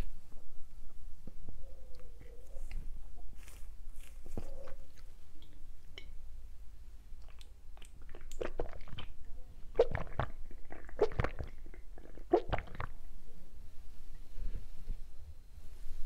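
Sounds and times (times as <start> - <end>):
person gulping a drink: 7.2 - 13.0.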